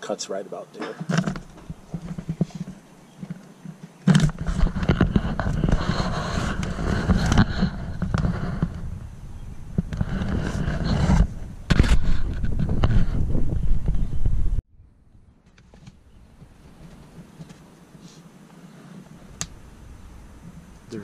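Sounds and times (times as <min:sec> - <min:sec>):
camera handling rumble and scraping: 0:00.9 - 0:14.3.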